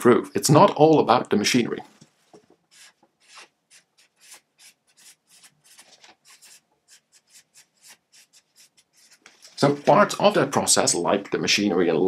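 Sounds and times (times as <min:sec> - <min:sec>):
marker scratching on paper: 0:02.7 - 0:09.4.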